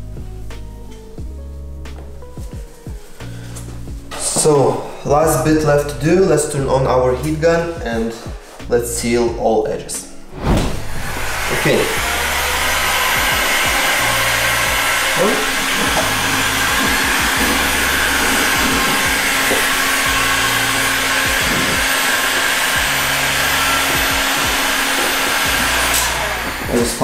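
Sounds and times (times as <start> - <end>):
heat gun fan blowing: 10.6 - 27.0.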